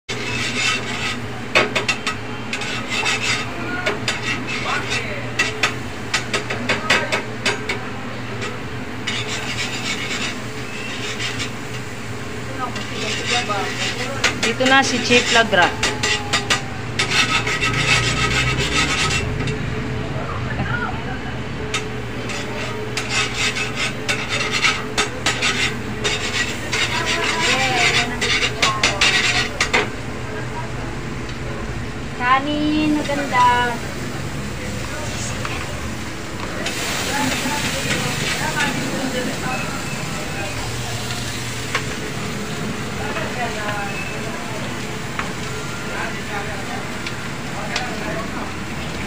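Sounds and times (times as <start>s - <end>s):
utensils scraping a frying pan: 0.1s - 19.6s, 21.7s - 30.0s
steady low hum: 7.4s - 43.6s.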